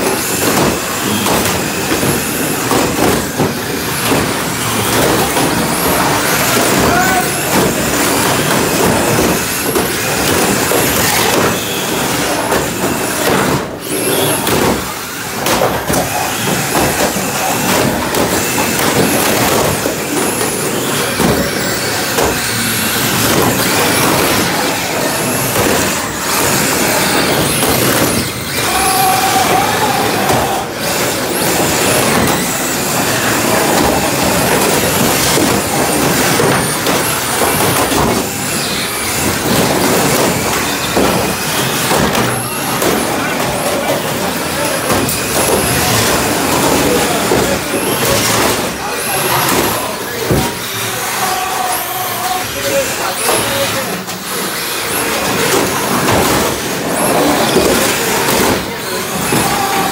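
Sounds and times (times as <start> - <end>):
plastic bodies colliding: 0.0 - 59.9
toy car motors and tyres: 0.0 - 59.9.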